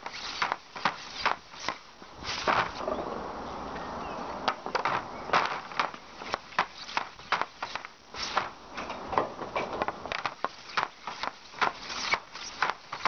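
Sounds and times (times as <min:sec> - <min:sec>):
hockey stick clacking on pucks: 0:00.0 - 0:01.8, 0:04.4 - 0:13.0
blade scraping across pad: 0:00.0 - 0:02.9, 0:04.8 - 0:08.6, 0:10.0 - 0:13.0.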